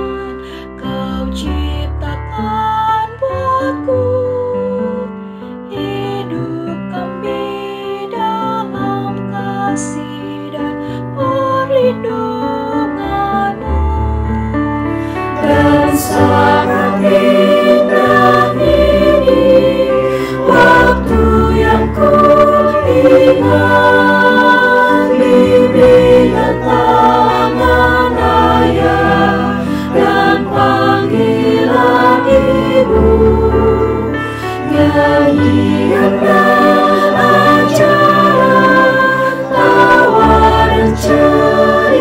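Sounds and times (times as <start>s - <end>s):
mixed choir singing in harmony: 15.0s - 42.0s.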